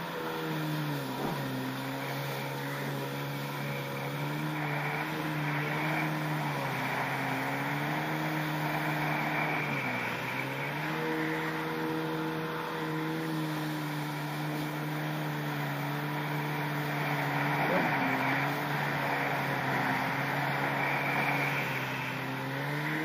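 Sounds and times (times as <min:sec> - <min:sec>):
jet ski engine running: 0:00.0 - 0:23.0.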